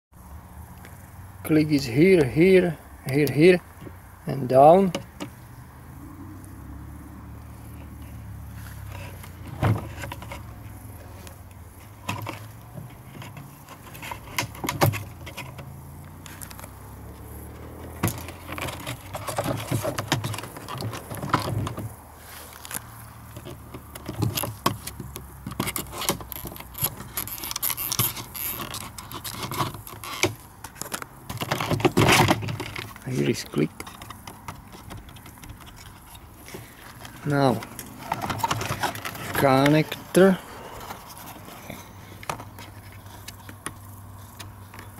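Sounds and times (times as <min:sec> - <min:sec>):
plastic clicks and scrapes: 0:08.8 - 0:16.8, 0:17.9 - 0:44.9.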